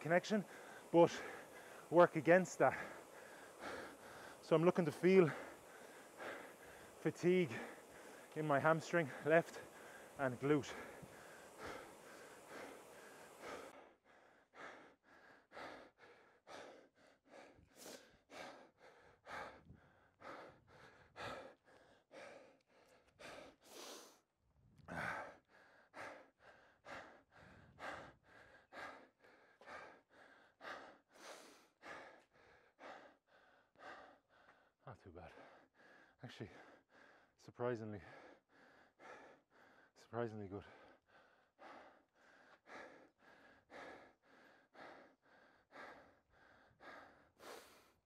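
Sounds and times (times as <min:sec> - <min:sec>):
man breathing hard and fast: 0:00.0 - 0:48.0.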